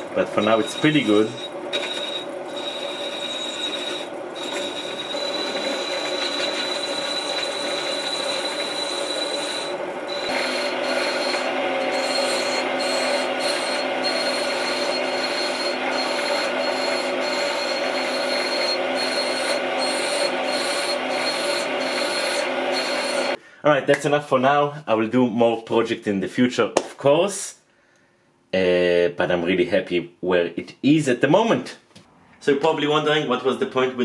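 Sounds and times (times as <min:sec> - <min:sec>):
chisel scraping brass rod: 0:00.0 - 0:23.4
lathe whining: 0:00.0 - 0:23.4.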